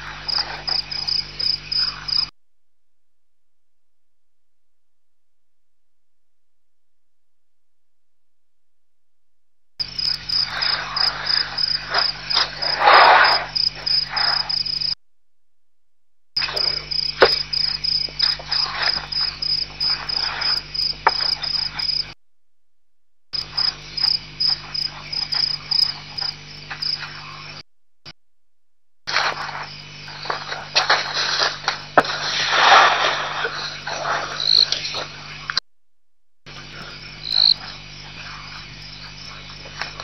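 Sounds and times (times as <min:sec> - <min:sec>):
crickets chirping: 0:00.0 - 0:02.3, 0:09.8 - 0:15.0, 0:16.4 - 0:22.2, 0:23.4 - 0:27.6, 0:29.1 - 0:35.6, 0:36.5 - 0:40.0
steady low hum: 0:00.0 - 0:40.0.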